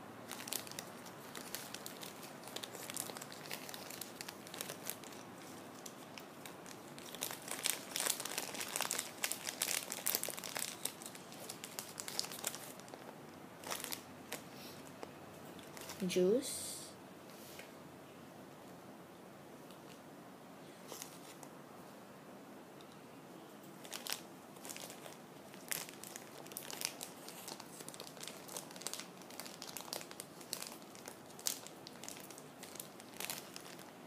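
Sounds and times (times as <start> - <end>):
plastic wrapping crinkling: 0.2 - 16.0, 20.8 - 21.5, 23.8 - 34.0.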